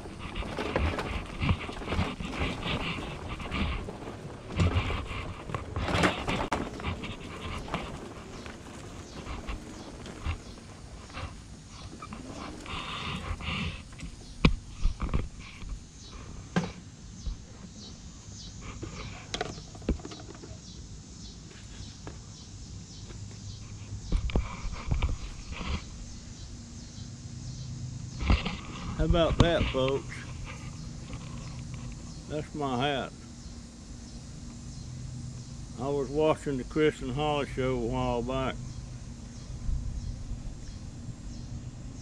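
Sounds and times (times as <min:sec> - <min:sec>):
rustling: 0:00.0 - 0:15.9, 0:28.1 - 0:32.6.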